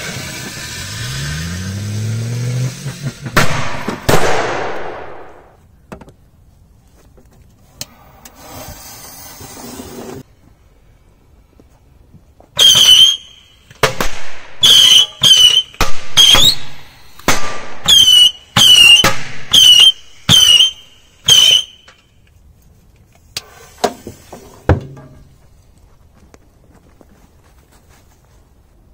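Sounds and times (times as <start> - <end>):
firecrackers banging in metal oven: 2.9 - 5.5, 13.8 - 20.7.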